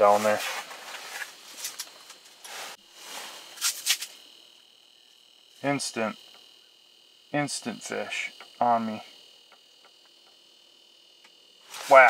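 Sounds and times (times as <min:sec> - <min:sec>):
person speaking: 0:00.0 - 0:00.5, 0:05.6 - 0:06.2, 0:07.4 - 0:09.1, 0:11.8 - 0:12.0
rustling and handling: 0:00.0 - 0:04.2
faint high electronic whine: 0:00.0 - 0:12.0.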